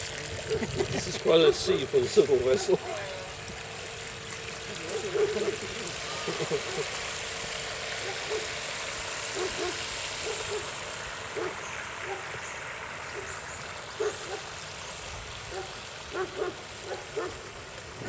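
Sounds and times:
model boat motor rushing hiss: 0:00.0 - 0:18.0.

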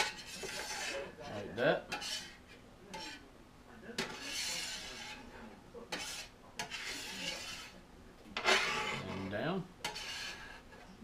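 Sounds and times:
metal spatula tapping griddle: 0:00.0 - 0:01.0, 0:01.9 - 0:03.2, 0:04.0 - 0:05.2, 0:05.9 - 0:07.7
spatula scraping griddle: 0:00.0 - 0:03.3, 0:03.9 - 0:11.0.

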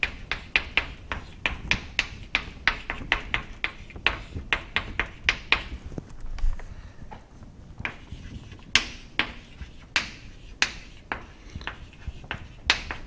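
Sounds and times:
chalk tapping on chalkboard: 0:00.0 - 0:05.8, 0:07.8 - 0:13.0.

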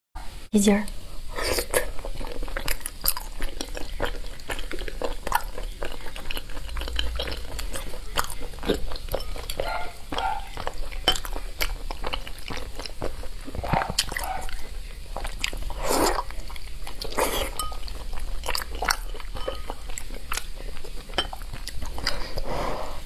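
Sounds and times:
wet chewing: 0:00.9 - 0:23.0
chopsticks clinking on glass: 0:09.0 - 0:11.4, 0:17.3 - 0:20.4, 0:21.0 - 0:21.5.

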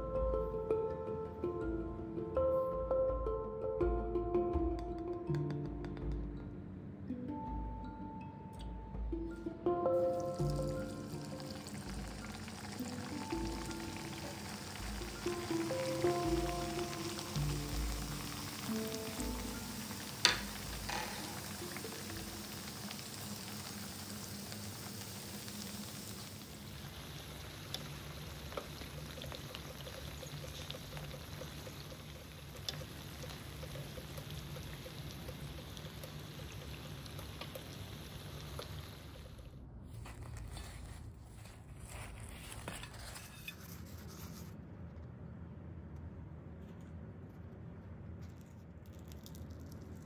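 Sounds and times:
soft hiss: 0:00.0 - 0:44.9
dough sizzling in oil: 0:10.0 - 0:39.5
food clattering onto plate: 0:20.1 - 0:22.0.

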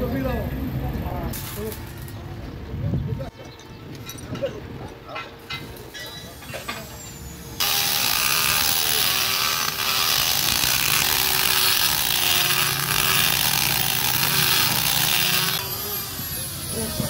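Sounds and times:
electric impact wrench running: 0:07.6 - 0:17.0.

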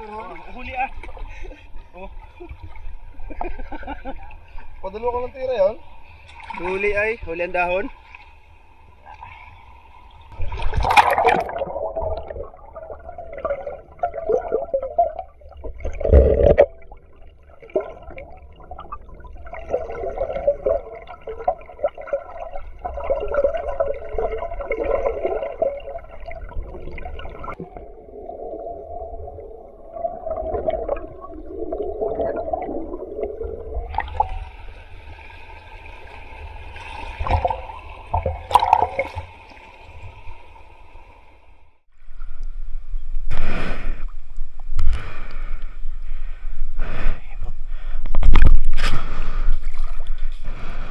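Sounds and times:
water splashes: 0:00.0 - 0:40.5, 0:48.2 - 0:50.9.

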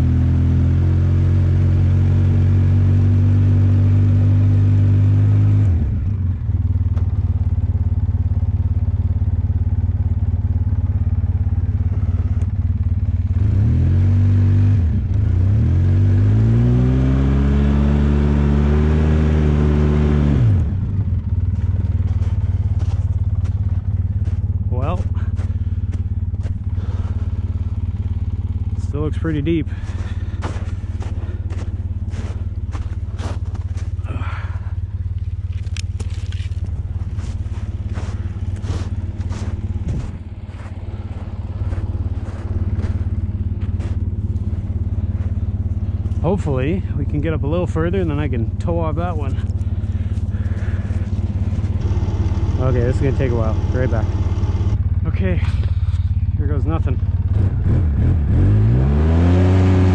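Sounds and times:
atv engine revving: 0:00.0 - 0:59.9
footsteps crunching in snow: 0:21.3 - 0:52.0.

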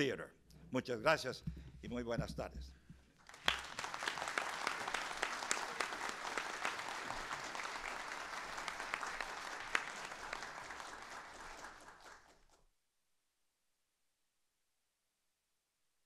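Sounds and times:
audience applauding: 0:03.2 - 0:12.6.

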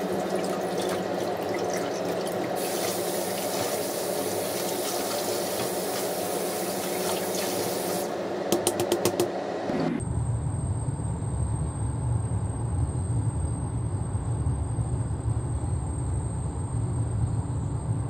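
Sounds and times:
tap running into sink: 0:00.0 - 0:09.3.

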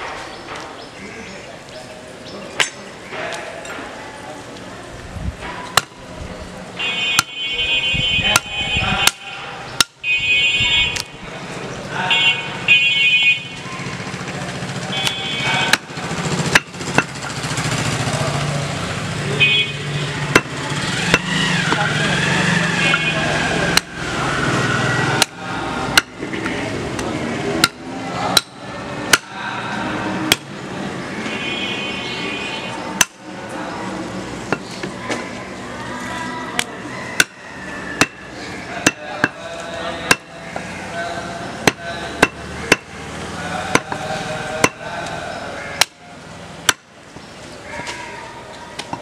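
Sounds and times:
cleaver chopping meat on wood: 0:05.7 - 0:06.0, 0:07.1 - 0:07.4, 0:08.3 - 0:10.0, 0:15.0 - 0:17.3, 0:20.2 - 0:21.8, 0:23.7 - 0:23.9, 0:25.2 - 0:26.4, 0:27.6 - 0:29.4, 0:30.3 - 0:30.5, 0:33.0 - 0:33.2, 0:36.6 - 0:37.4, 0:38.0 - 0:38.2, 0:38.8 - 0:40.7, 0:41.6 - 0:43.0, 0:43.7 - 0:44.9, 0:46.6 - 0:46.9.

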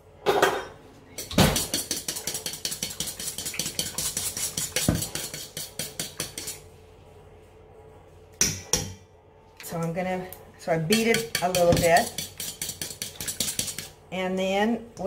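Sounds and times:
fork clinking in metal bowl: 0:01.2 - 0:06.6, 0:10.9 - 0:13.9.

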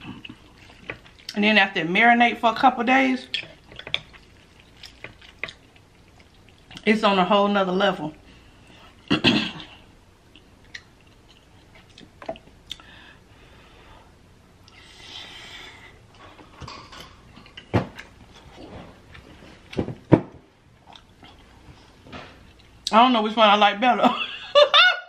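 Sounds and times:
soft chewing: 0:00.0 - 0:01.4, 0:03.3 - 0:06.9, 0:10.3 - 0:12.9, 0:20.8 - 0:22.9.

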